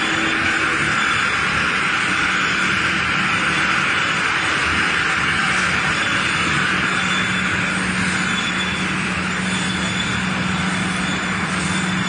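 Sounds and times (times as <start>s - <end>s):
machine hissing and humming: 0.0s - 12.0s.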